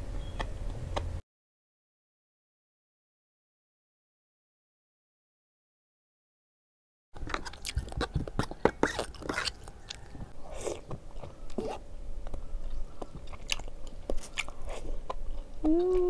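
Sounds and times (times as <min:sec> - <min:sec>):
person chewing and slurping noodles: 0:07.2 - 0:16.0.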